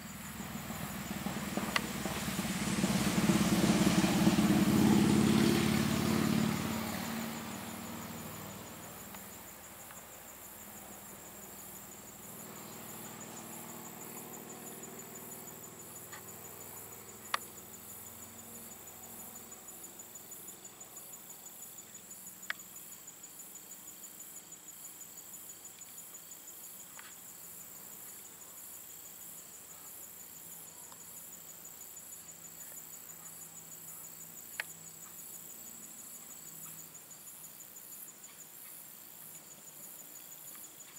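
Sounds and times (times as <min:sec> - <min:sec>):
passing vehicle: 0:00.0 - 0:09.4, 0:11.9 - 0:20.0
crickets trilling: 0:00.0 - 0:40.9.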